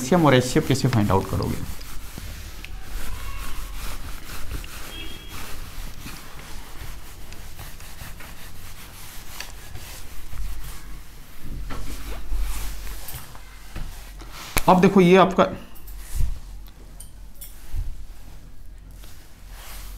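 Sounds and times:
eraser rubbing on whiteboard: 0.0 - 14.7.

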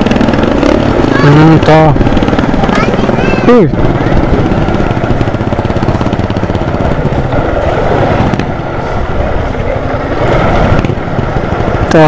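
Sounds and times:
small motorcycle engine running: 0.0 - 12.0
wind on microphone: 0.0 - 12.0.

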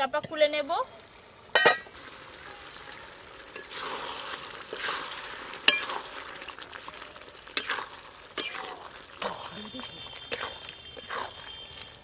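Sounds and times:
curry bubbling and sizzling: 0.0 - 12.0
ladle stirring: 3.2 - 12.0.

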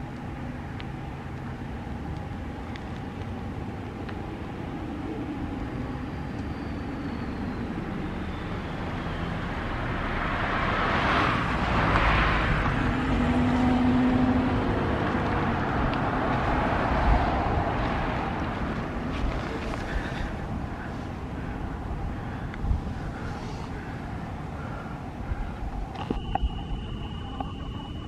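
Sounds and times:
vehicle passing by: 7.3 - 25.6.

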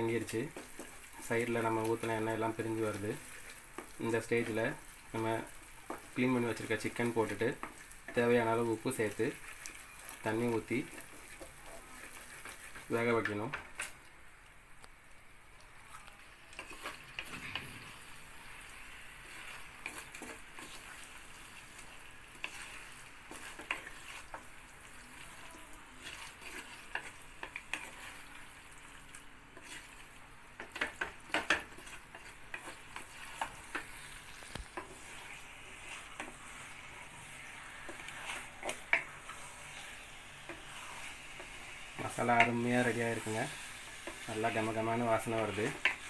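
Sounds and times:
food sizzling in oil: 0.0 - 14.0, 15.5 - 46.0
wooden spatula scraping a pot: 5.8 - 13.4, 19.3 - 24.5, 25.2 - 28.4, 29.6 - 30.0, 30.6 - 46.0.

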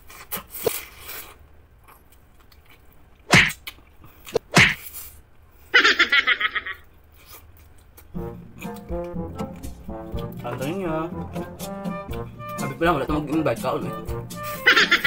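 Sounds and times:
person eating mouth noises: 7.1 - 10.5, 11.2 - 12.4.

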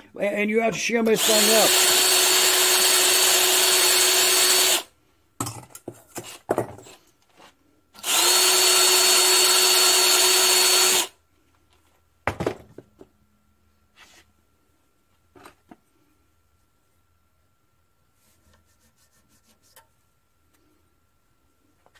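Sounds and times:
cordless drill whining: 1.2 - 4.9, 8.0 - 11.2.

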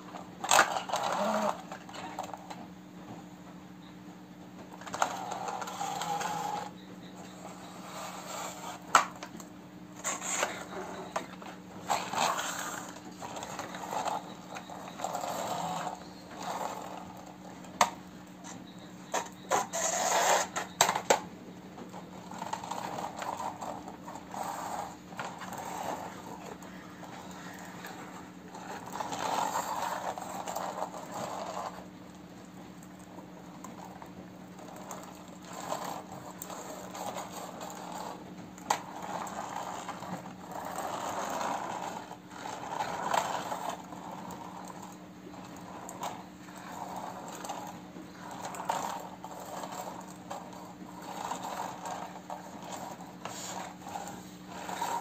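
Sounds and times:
faint steady hum: 0.0 - 55.0
plastic toy truck clicks and rattles: 0.4 - 2.6.

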